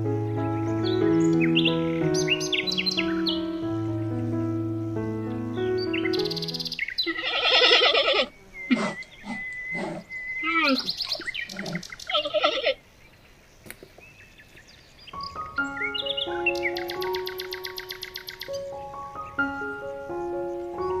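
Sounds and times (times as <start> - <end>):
animal calls: 6.2 - 12.8
thin steady whistling tone: 8.4 - 11.4.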